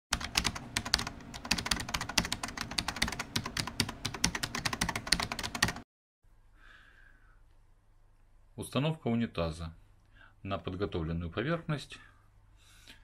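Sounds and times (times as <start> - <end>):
keyboard typing clicks: 0.2 - 5.8.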